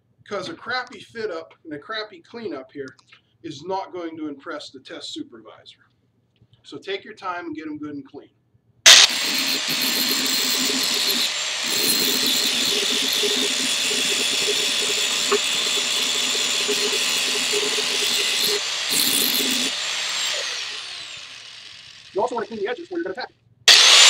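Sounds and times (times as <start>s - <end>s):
angle grinder grinding steel: 8.9s - 22.7s, 23.7s - 24.0s
grinder spinning down: 8.9s - 22.8s, 23.7s - 24.0s.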